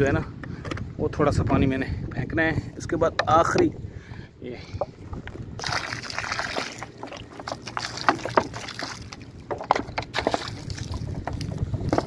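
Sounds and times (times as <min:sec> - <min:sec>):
water splashing onto dirt: 0:05.6 - 0:12.0.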